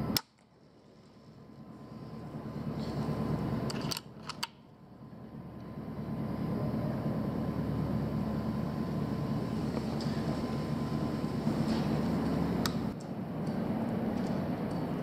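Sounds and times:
steady low rumble: 0.0 - 15.0
air rifle action clicks: 3.7 - 4.6.

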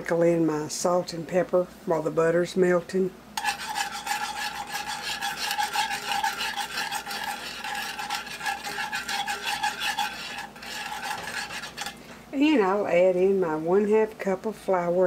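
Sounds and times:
whisk scraping a skillet: 3.4 - 12.2.

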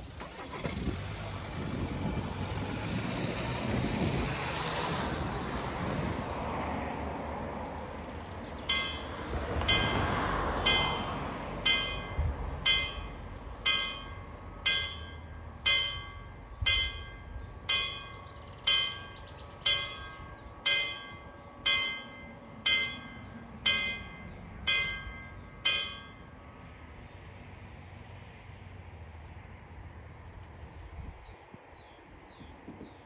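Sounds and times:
level crossing warning bell: 8.7 - 26.4.

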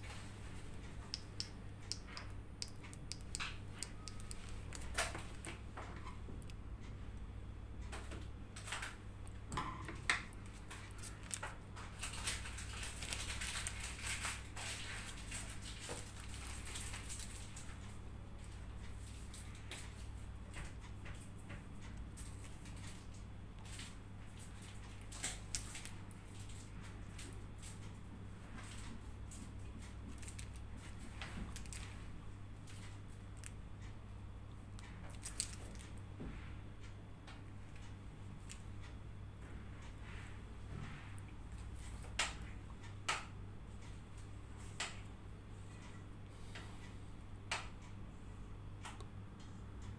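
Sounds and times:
low steady hum: 0.0 - 49.9
plastic piping bag crinkling: 0.1 - 5.7, 8.6 - 17.8, 22.1 - 27.8, 28.6 - 33.6, 35.0 - 36.0.

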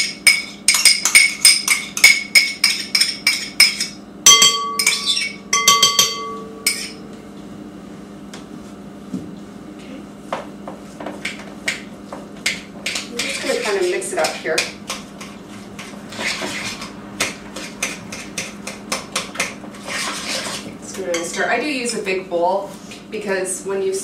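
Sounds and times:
spoon knocking against bowl: 0.3 - 7.0
ringing clinks: 4.3 - 7.0.

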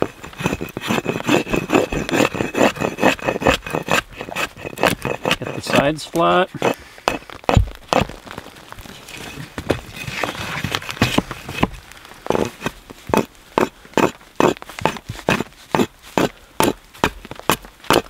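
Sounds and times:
axe chopping wood: 7.1 - 8.2, 13.1 - 18.0.

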